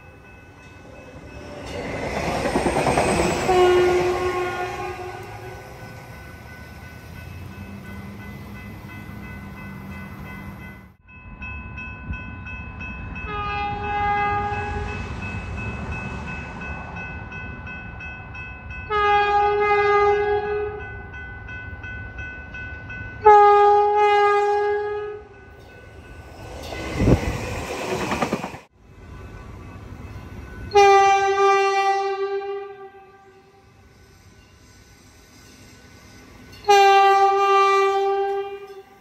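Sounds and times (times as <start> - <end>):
crossing bell ringing: 0.0 - 28.1, 29.0 - 31.6
train rushing past: 0.0 - 39.0
train horn blasts: 3.4 - 5.8, 13.3 - 15.0, 18.9 - 20.8, 23.2 - 25.4, 30.7 - 33.6, 36.6 - 39.0.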